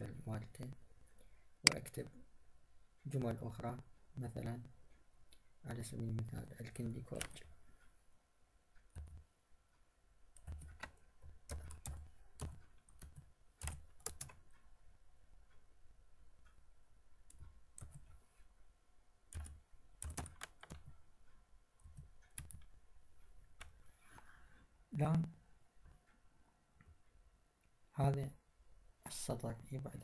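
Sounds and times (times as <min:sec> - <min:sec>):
computer keyboard typing: 0:08.8 - 0:09.3, 0:10.3 - 0:14.5, 0:17.3 - 0:18.1, 0:19.3 - 0:20.9, 0:21.8 - 0:22.7.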